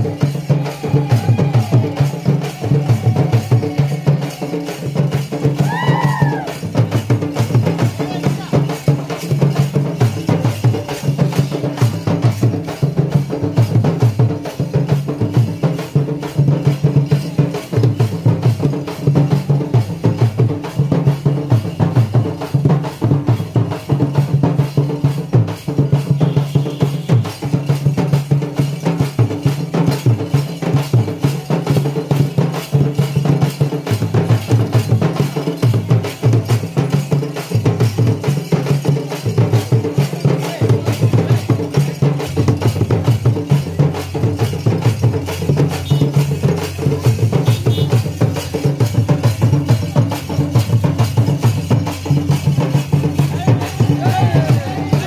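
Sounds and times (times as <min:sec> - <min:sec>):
fast driving drum rhythm: 0:00.0 - 0:55.0.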